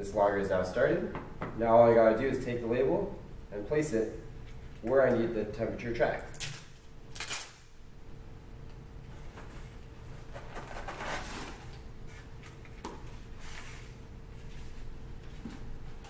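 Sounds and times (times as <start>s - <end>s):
faint steady hum: 0.0s - 16.0s
label backing rustling: 9.1s - 16.0s.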